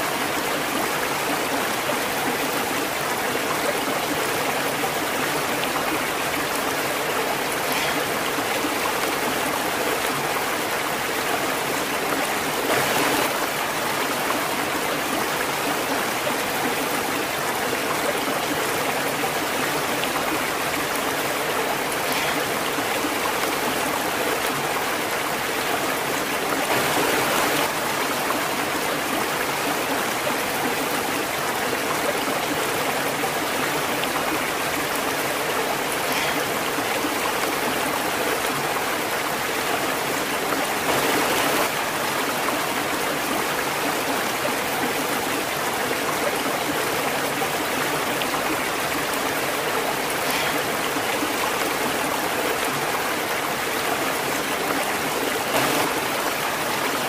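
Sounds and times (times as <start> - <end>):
stream cascading into pool: 0.0 - 57.0.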